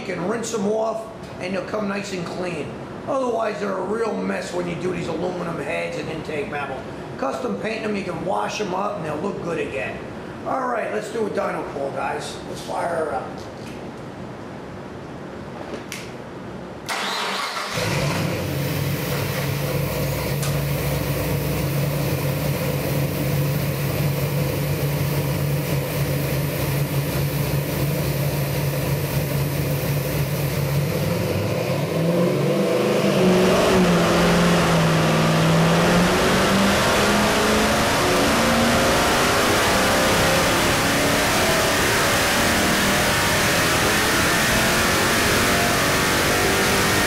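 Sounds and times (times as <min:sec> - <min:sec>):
engine starting and idling: 0:16.8 - 0:31.0
engine revving under load: 0:16.9 - 0:47.0.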